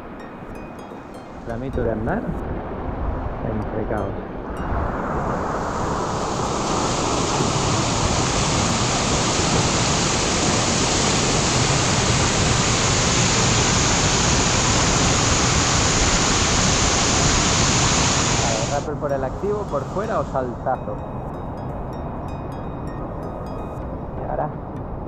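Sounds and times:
waterfall rushing: 4.6 - 21.0.

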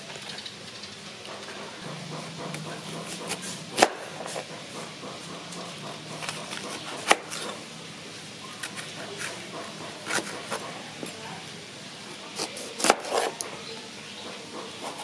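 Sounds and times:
knife cutting pepper: 1.8 - 7.6, 8.6 - 11.2, 12.2 - 13.6, 14.5 - 15.0.

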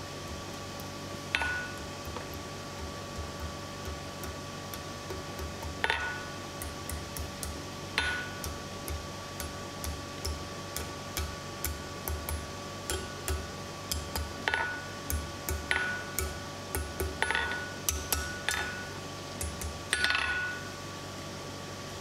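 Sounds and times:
steady hum: 0.0 - 22.0
hammer tapping hot steel: 0.3 - 20.7
anvil ringing from hard blows: 1.4 - 1.8, 5.8 - 6.3, 8.0 - 8.4, 15.7 - 16.4, 17.2 - 18.9, 19.9 - 20.8.

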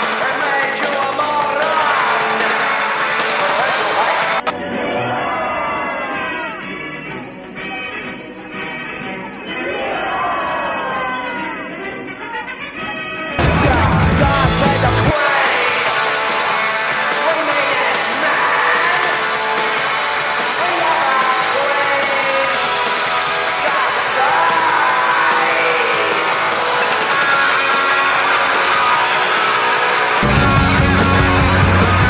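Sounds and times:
man singing: 0.0 - 4.5, 13.4 - 27.8
rock band playing: 0.0 - 4.5, 13.4 - 32.0.

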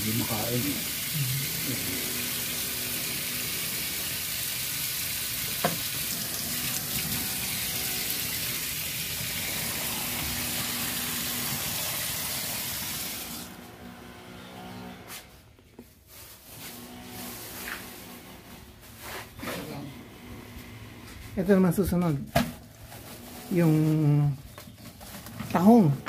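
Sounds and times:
tap running into steel sink: 5.4 - 6.1
knock: 5.6 - 5.8.

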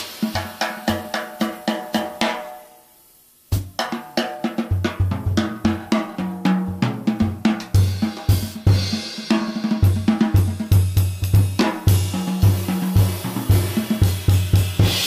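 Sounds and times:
jazz drum solo: 0.0 - 15.0
cymbal hits: 11.6 - 15.0.

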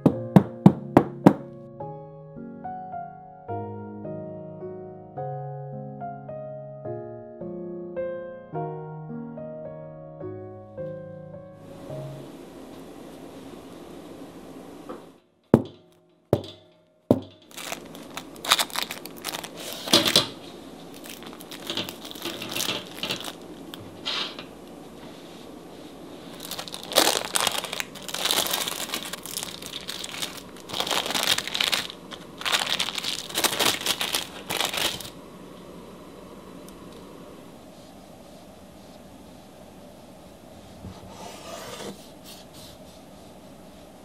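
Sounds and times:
parchment paper crinkling: 17.1 - 23.8, 26.3 - 35.2.

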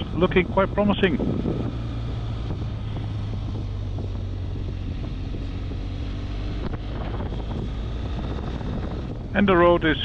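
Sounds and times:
motorcycle engine droning: 0.0 - 10.0
wind rush over microphone: 0.0 - 10.0.

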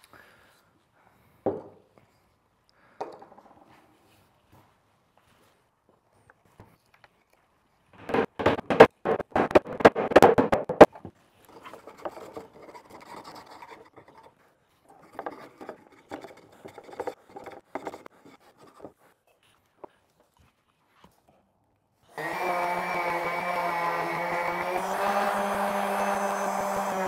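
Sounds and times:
wooden knocks and scrapes: 8.0 - 14.3, 15.0 - 19.0
hand plane shaving wood: 11.5 - 14.4, 22.1 - 27.0.

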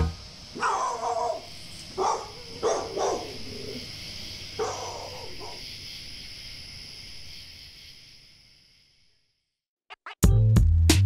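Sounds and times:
dog barking: 0.6 - 3.9, 4.5 - 5.7.

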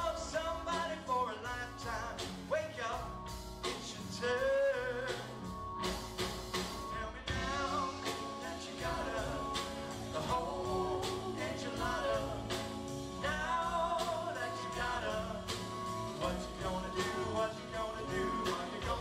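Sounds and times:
band playing a song: 0.0 - 19.0
person singing: 6.8 - 19.0.

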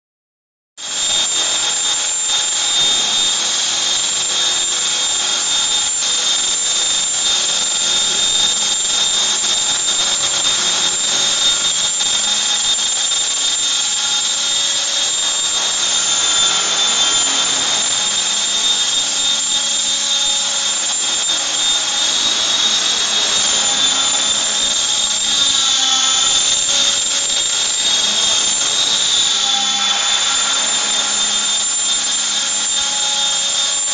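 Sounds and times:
helicopter rotor noise: 0.8 - 33.9
rc helicopter motor whine: 0.8 - 33.9.

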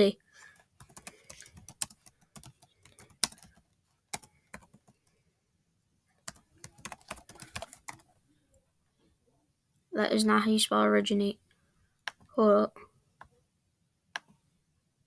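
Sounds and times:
typing on keyboard: 0.5 - 5.1, 6.2 - 8.1.

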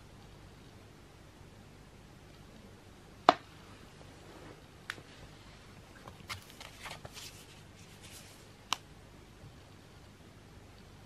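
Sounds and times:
paper and cardboard rustling: 6.1 - 8.5.

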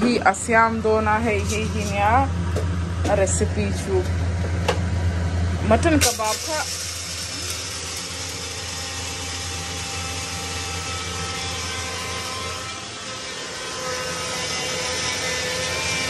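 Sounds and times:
low hum: 0.0 - 13.0
motor whirring: 6.0 - 11.8.

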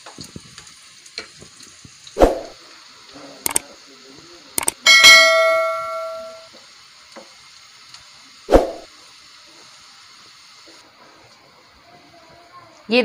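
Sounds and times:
onions sizzling in a pan: 0.0 - 13.0
metallic ring: 4.9 - 6.5.

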